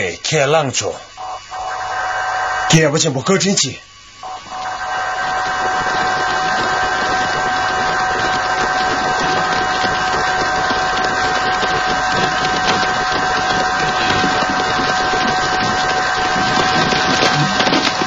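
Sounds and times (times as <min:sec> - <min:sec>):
marching soldiers and horses tramping: 0:05.4 - 0:18.0.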